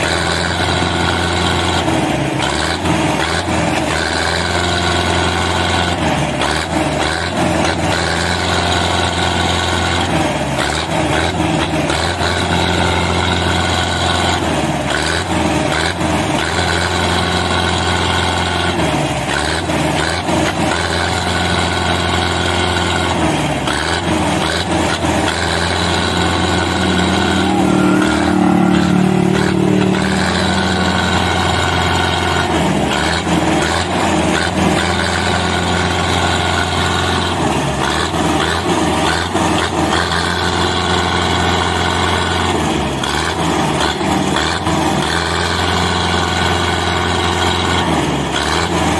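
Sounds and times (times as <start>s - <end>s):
tractor diesel engine running: 0.0s - 48.9s.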